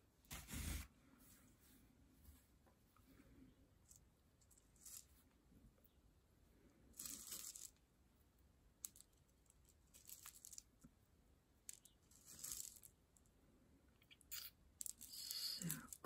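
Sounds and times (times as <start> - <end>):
beads rattling and clicking: 3.9 - 5.1, 6.9 - 7.8, 8.8 - 10.9, 11.6 - 13.3, 14.1 - 16.0.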